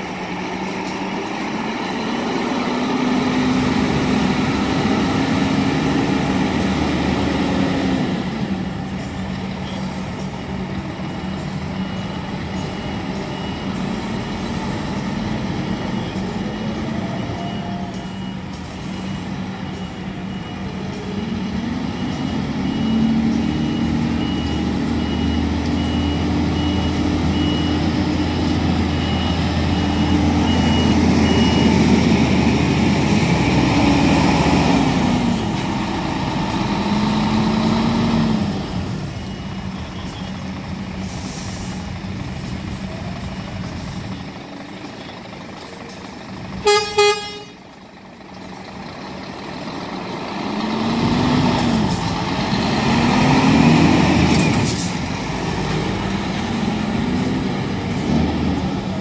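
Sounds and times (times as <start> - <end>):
diesel truck engine revving: 0.0 - 59.0
reversing alarm beeping: 0.0 - 59.0
truck horn toots: 46.6 - 47.7.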